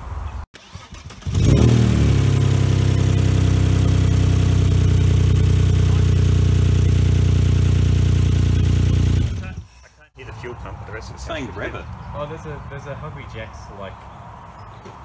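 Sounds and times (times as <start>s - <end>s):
engine cranking on starter: 0.6s - 2.9s.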